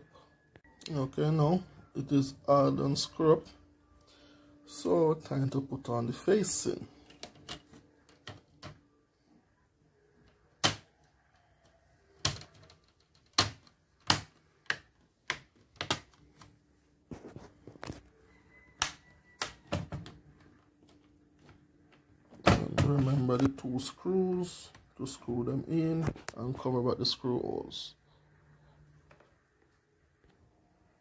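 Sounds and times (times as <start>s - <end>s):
plastic clips snapping: 12.2s - 16.5s.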